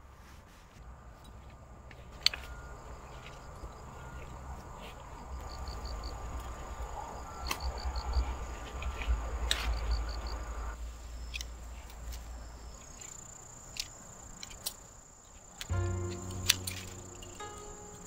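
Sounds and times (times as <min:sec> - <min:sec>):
insects trilling: 0:01.9 - 0:18.0
quick insect chirps: 0:12.2 - 0:18.0.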